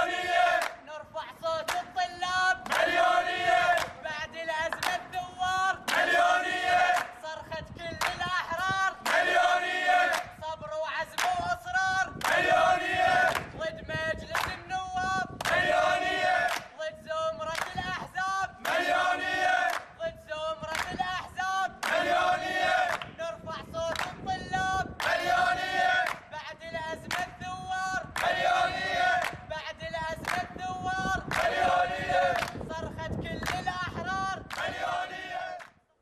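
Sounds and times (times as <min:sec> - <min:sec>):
young men chanting in unison: 0:00.0 - 0:35.7
hand-clapping: 0:00.6 - 0:00.8, 0:01.6 - 0:02.0, 0:02.6 - 0:03.1, 0:03.7 - 0:04.0, 0:04.7 - 0:05.1, 0:05.9 - 0:06.1, 0:06.9 - 0:07.2, 0:08.0 - 0:08.3, 0:10.1 - 0:10.3, 0:11.1 - 0:11.5, 0:12.2 - 0:12.4, 0:13.2 - 0:13.6, 0:14.3 - 0:14.6, 0:15.4 - 0:15.6, 0:16.5 - 0:16.8, 0:17.5 - 0:17.8, 0:19.7 - 0:19.9, 0:20.7 - 0:21.0, 0:21.8 - 0:22.1, 0:22.8 - 0:23.2, 0:23.9 - 0:24.2, 0:25.0 - 0:25.2, 0:26.0 - 0:26.3, 0:27.0 - 0:27.4, 0:28.2 - 0:28.4, 0:29.2 - 0:29.4, 0:30.2 - 0:30.5, 0:31.3 - 0:31.6, 0:32.3 - 0:32.6, 0:33.4 - 0:33.7, 0:34.5 - 0:34.7.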